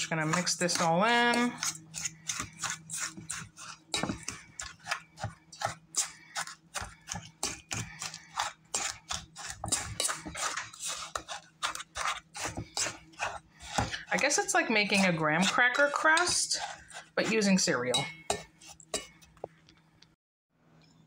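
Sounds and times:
fork scraping steel bowl: 0:00.0 - 0:19.4.

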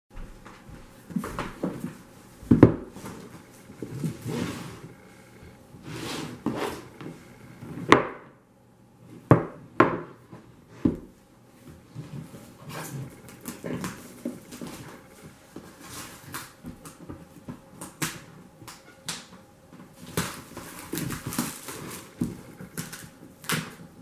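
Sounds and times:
cardboard sliding and rustling: 0:03.1 - 0:05.0, 0:05.8 - 0:07.9.

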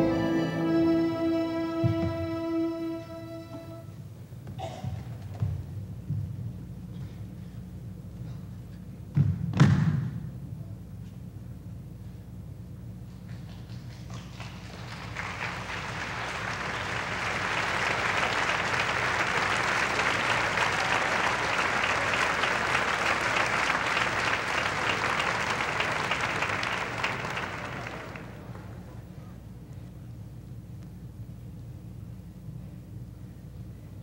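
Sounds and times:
audience applauding: 0:00.0 - 0:01.4, 0:13.4 - 0:28.8.

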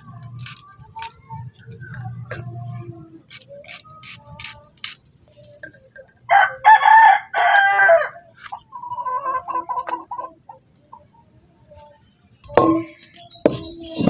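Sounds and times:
rooster crowing: 0:06.3 - 0:08.2.

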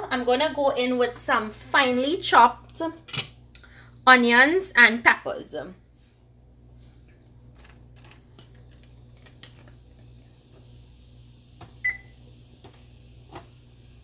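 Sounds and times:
onions sizzling in hot oil: 0:08.9 - 0:14.0.

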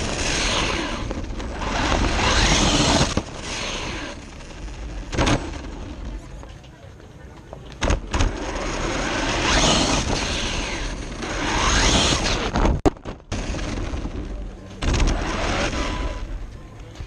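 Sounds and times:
rc truck motor whine: 0:00.0 - 0:04.3, 0:08.2 - 0:12.5
rough tyre and chassis noise: 0:00.0 - 0:17.0.

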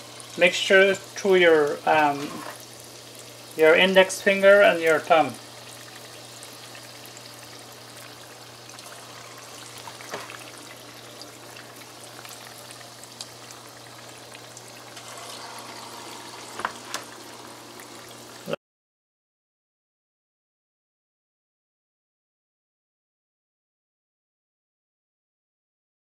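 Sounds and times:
batter deep-frying in oil: 0:00.0 - 0:18.6.

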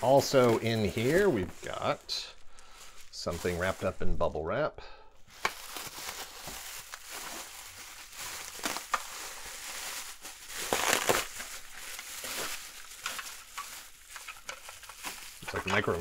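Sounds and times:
bubble wrap crinkling: 0:00.0 - 0:04.3, 0:05.2 - 0:16.0.

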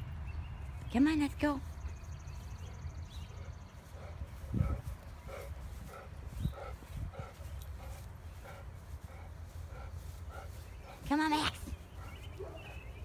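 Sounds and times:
dull low thumps: 0:01.7 - 0:12.2
dog panting: 0:02.6 - 0:13.0.

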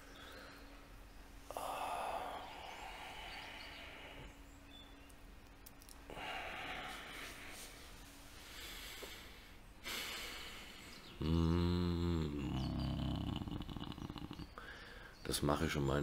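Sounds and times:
man breathing deeply: 0:00.0 - 0:04.4, 0:06.1 - 0:12.2, 0:14.5 - 0:15.2
man's low vocal drone: 0:01.4 - 0:04.4, 0:06.1 - 0:07.7, 0:08.5 - 0:15.0.

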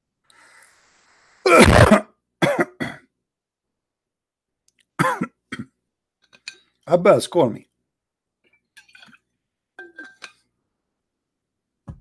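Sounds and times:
man clearing his throat: 0:01.5 - 0:03.1, 0:05.0 - 0:05.8.

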